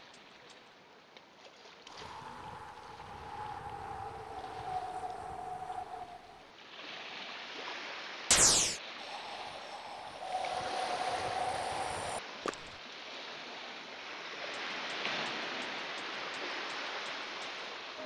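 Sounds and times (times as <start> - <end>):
rushing wind: 1.9 - 6.6, 8.3 - 12.8
sharp click: 8.3 - 8.8
loud whoosh: 8.3 - 12.2
steady rising tone: 8.3 - 12.2.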